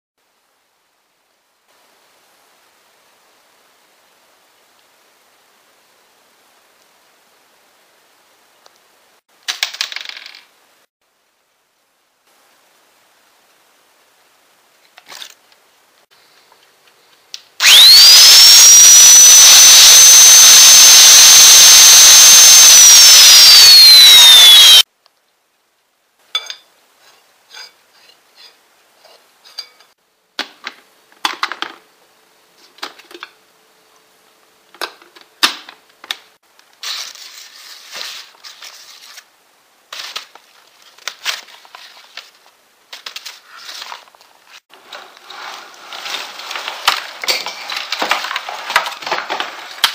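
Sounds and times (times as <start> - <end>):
small electric motor whirring: 17.6 - 24.8.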